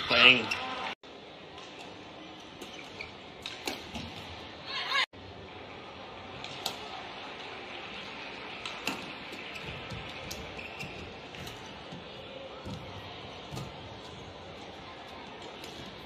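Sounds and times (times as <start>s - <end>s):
arena background noise: 0.0s - 16.0s
racket hitting shuttlecock: 3.4s - 4.3s, 8.6s - 10.4s.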